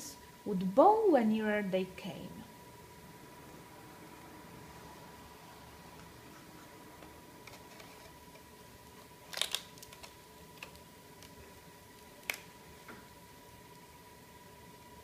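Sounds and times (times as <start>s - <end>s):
faint high-pitched hum: 0.0s - 15.0s
card pages clicking and snapping: 9.3s - 11.4s, 12.0s - 12.5s.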